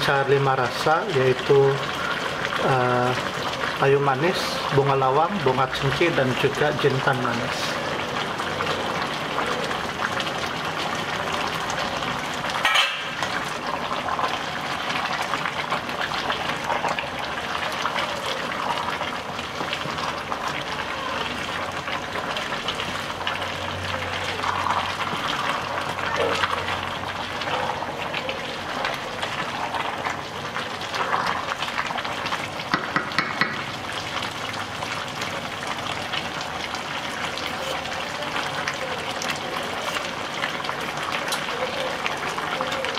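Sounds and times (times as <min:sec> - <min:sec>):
broth bubbling in metal pot: 0:00.0 - 0:42.9
spoon scraping and knocking pot: 0:32.7 - 0:33.7.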